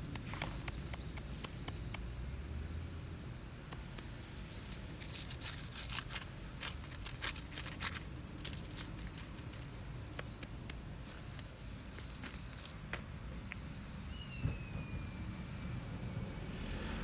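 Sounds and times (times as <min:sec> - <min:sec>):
sharp clicks and crackles: 0:03.7 - 0:11.5.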